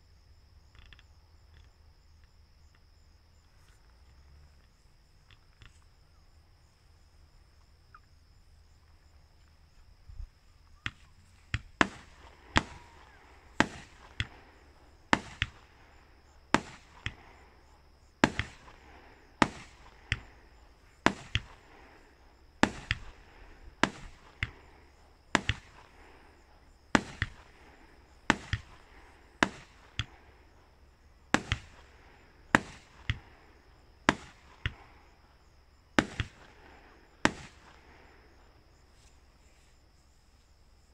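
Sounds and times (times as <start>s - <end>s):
fireworks bangs with echo: 10.8s - 38.6s.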